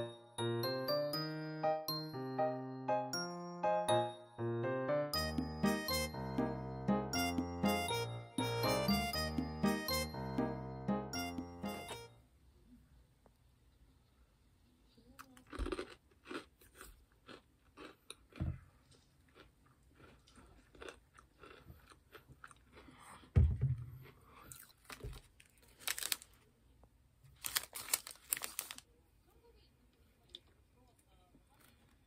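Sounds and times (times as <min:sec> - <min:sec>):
crisp crunching of chewing: 0:15.2 - 0:23.3, 0:24.0 - 0:26.5, 0:27.4 - 0:28.8
plastic wrapper crinkling: 0:24.8 - 0:26.5, 0:27.3 - 0:28.9.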